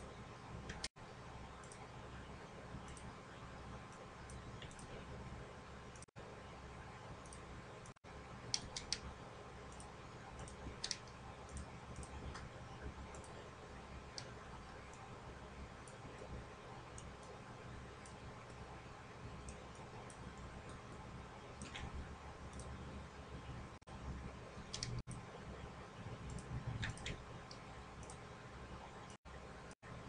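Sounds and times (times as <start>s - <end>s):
faint low hum: 0.0s - 30.0s
computer mouse clicking: 0.6s - 0.9s, 2.8s - 3.1s, 3.9s - 5.1s, 7.2s - 13.5s, 14.1s - 15.1s, 16.9s - 18.6s, 19.4s - 22.9s, 24.6s - 25.3s, 26.1s - 28.3s.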